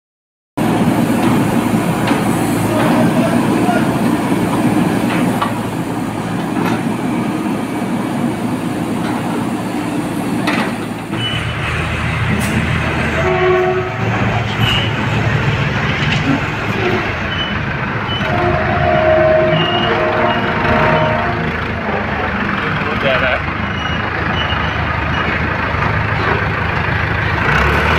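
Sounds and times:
diesel engine running: 0.6s - 27.9s
low steady crane engine driving: 0.6s - 27.9s
short horn-like tones: 13.1s - 15.0s, 18.2s - 22.0s.

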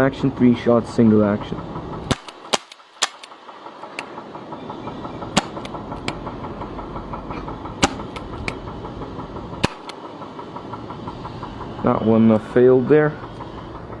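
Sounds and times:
engine-like drone: 0.0s - 14.0s
gel blaster pistol shots: 2.1s - 3.4s, 9.6s - 10.0s.

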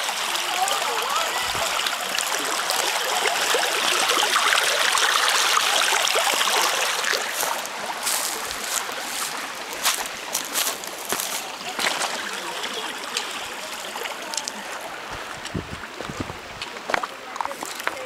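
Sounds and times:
stream running over rocks: 0.0s - 18.0s
footsteps on reeds and gravel: 7.2s - 12.2s, 15.1s - 18.0s.

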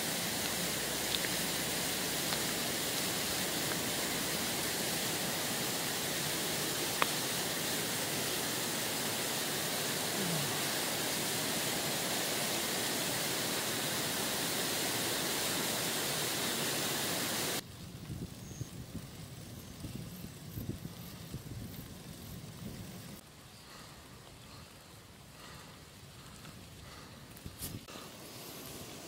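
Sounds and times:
river water rushing: 0.0s - 17.6s.

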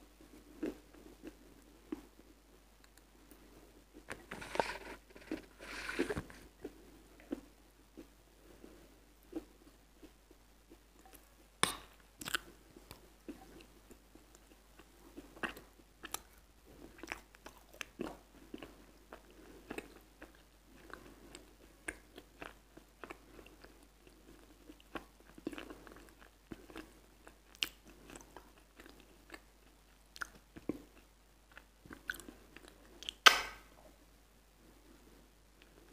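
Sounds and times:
wet chewing and mouth clicks: 9.4s - 33.3s.

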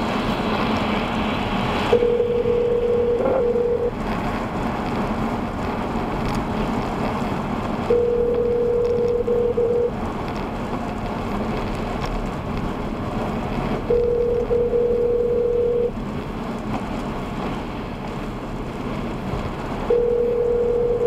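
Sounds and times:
tyre and rain noise in car: 0.0s - 21.0s
telephone ringback tone: 1.9s - 3.9s, 7.9s - 9.9s, 13.9s - 15.9s, 19.9s - 21.0s.

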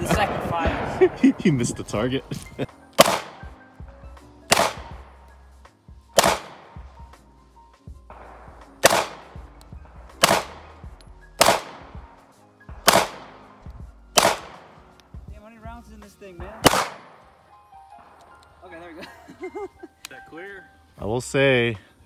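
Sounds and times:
faint background music: 0.0s - 22.0s
pistol shots: 3.0s - 3.6s, 4.5s - 5.2s, 6.2s - 6.9s, 8.1s - 9.5s, 10.2s - 12.1s, 12.8s - 13.5s, 14.1s - 14.9s, 16.6s - 17.3s.

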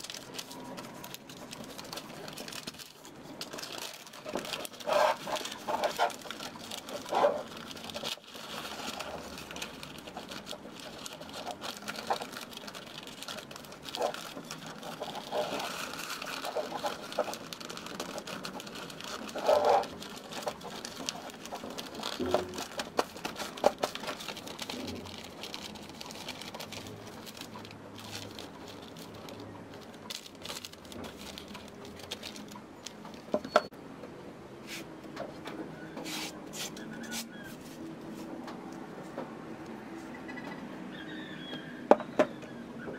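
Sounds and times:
wrapping paper rustling: 0.0s - 33.7s.

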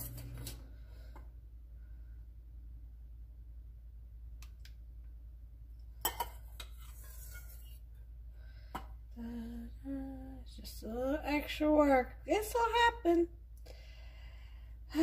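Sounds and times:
bowls clinking: 6.0s - 7.5s
woman humming: 9.2s - 10.6s.

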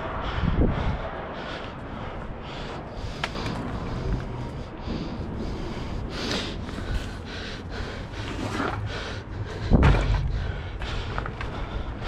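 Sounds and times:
person breathing hard: 0.0s - 12.0s
loud thump: 9.7s - 10.5s.

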